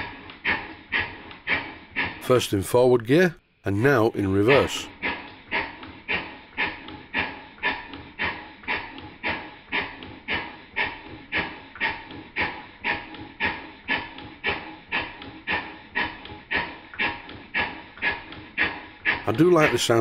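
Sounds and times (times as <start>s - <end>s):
model steam engine chuffing: 0.0s - 20.0s.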